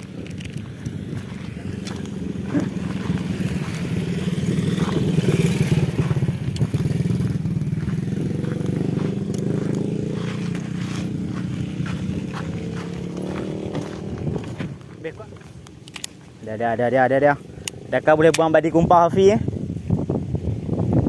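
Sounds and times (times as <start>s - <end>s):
motorcycle engine running: 0.0s - 15.7s.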